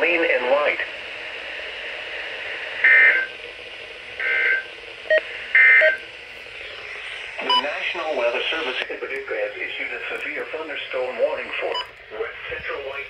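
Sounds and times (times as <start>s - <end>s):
broadcast hiss: 0.0s - 13.0s
harsh digital data tones: 4.2s - 6.0s, 7.4s - 8.0s.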